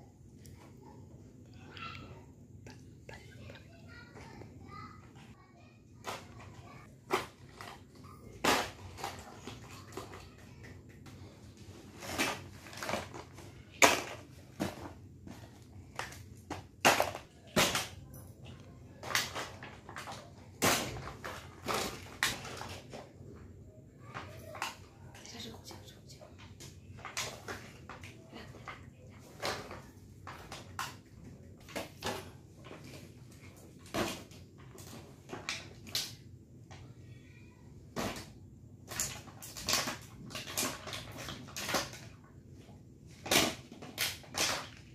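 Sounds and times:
plastic toy cars clattering: 0:03.2 - 0:44.9
plastic packaging rustling: 0:11.1 - 0:23.1, 0:38.8 - 0:42.2.

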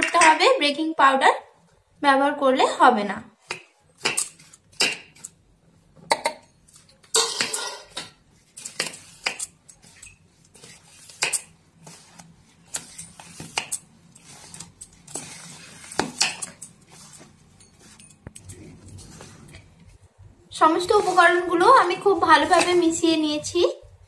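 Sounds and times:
flour scraping rustles: 0:08.4 - 0:16.2, 0:20.6 - 0:23.0.

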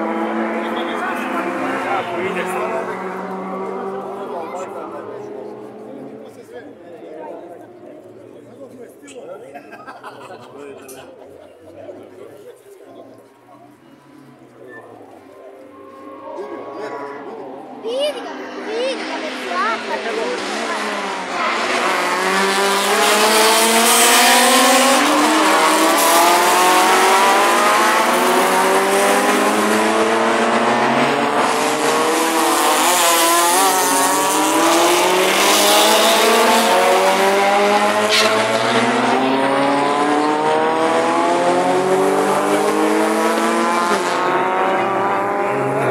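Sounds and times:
racing car engine revving: 0:00.0 - 0:06.4, 0:15.8 - 0:45.9.

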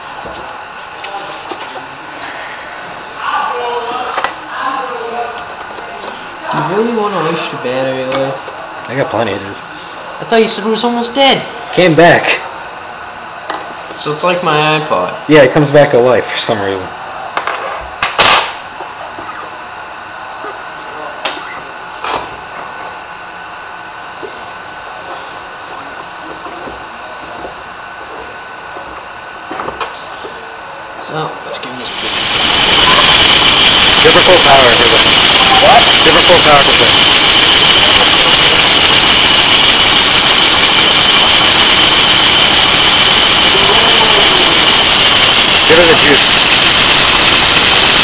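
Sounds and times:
steam engine exhaust hissing: 0:31.6 - 0:48.0
steady rushing hiss: 0:31.7 - 0:36.7.

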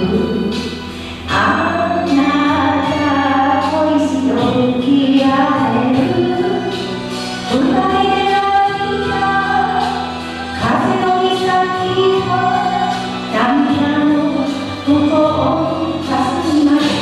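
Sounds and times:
woman singing into a microphone: 0:00.0 - 0:00.7, 0:01.3 - 0:06.8, 0:07.5 - 0:17.0
backing music: 0:00.0 - 0:17.0.

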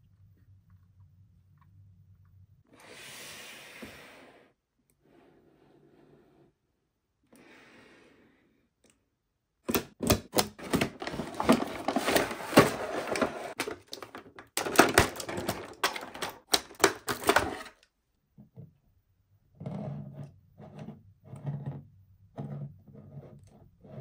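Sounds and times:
plastic pieces clicking and rustling: 0:10.0 - 0:17.8.

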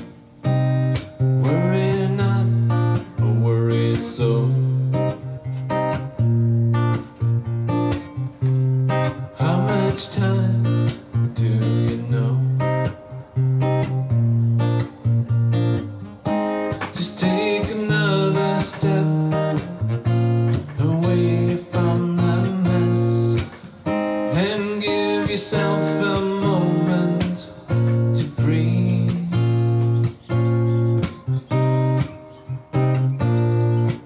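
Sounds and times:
guitar playing: 0:00.0 - 0:34.0.

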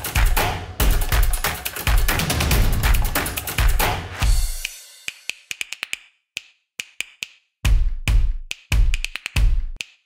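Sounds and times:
percussive beat of clicks: 0:00.0 - 0:10.0.

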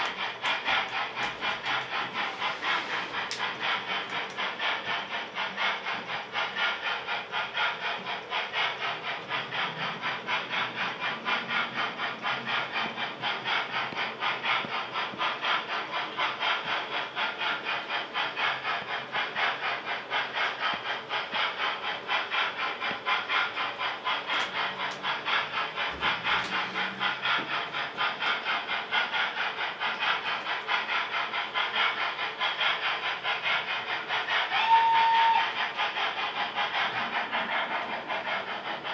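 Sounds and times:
model steam locomotive chuffing: 0:00.0 - 0:38.9
locomotive whistle: 0:34.5 - 0:35.6.

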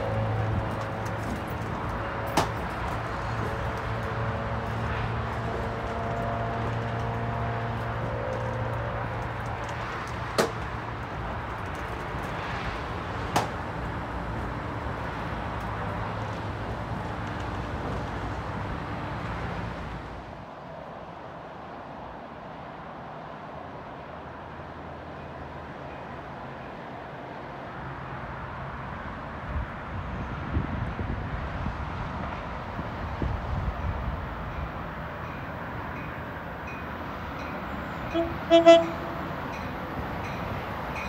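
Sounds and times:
train cars rumbling on rails: 0:00.0 - 0:41.0.

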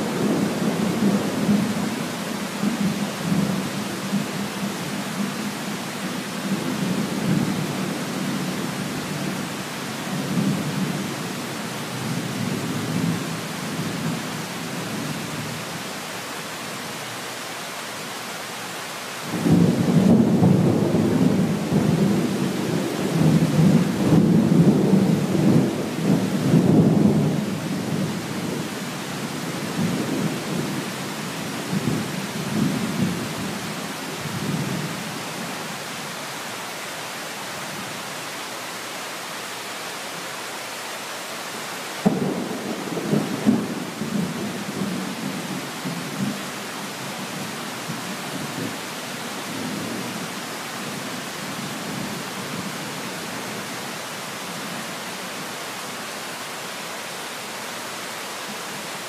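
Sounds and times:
rain hiss: 0:00.0 - 0:59.0.

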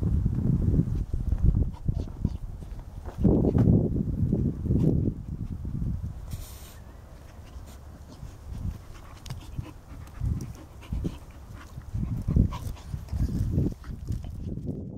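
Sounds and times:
dog rolling in loose dirt: 0:06.3 - 0:14.9
dog panting: 0:07.2 - 0:14.6.

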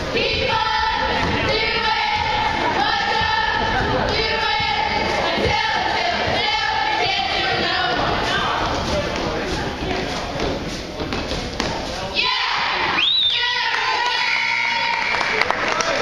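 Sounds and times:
girls chanting in unison: 0:00.0 - 0:08.8, 0:12.1 - 0:14.3.

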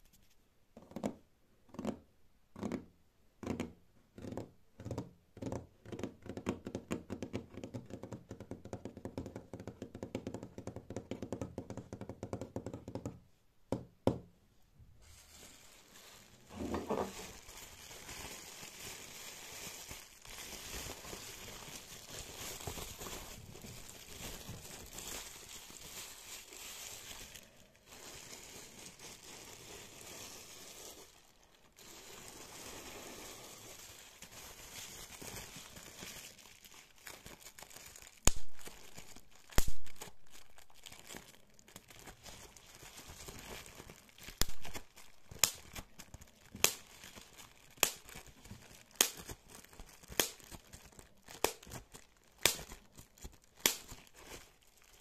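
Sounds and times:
bubble wrap handled: 0:14.9 - 0:55.0
crinkly rustling: 0:15.0 - 0:55.0.

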